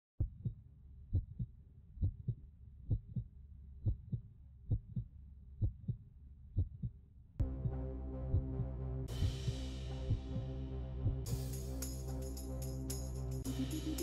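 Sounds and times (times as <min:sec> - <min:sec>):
heartbeat double thump: 0:00.2 - 0:03.2.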